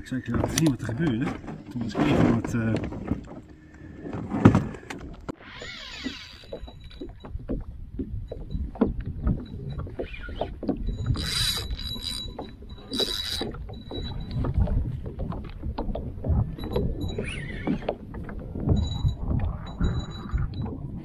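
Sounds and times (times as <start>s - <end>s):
gear knocking on boat: 0.0s - 5.3s, 6.0s - 21.0s
water slapping kayak hull: 0.0s - 21.0s
fishing reel whirring: 5.3s - 7.0s, 11.1s - 13.6s.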